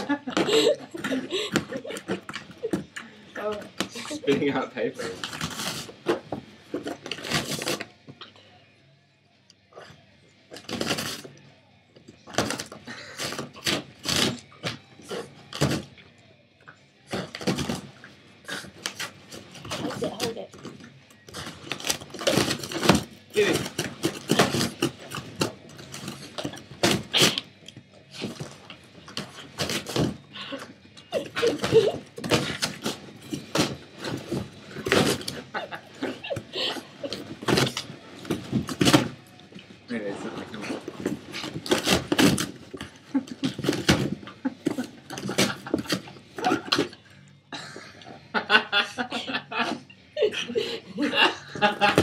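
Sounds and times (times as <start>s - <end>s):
dog ripping cardboard: 5.0s - 6.2s, 6.8s - 7.9s, 21.3s - 27.5s, 31.2s - 36.1s, 40.6s - 46.9s.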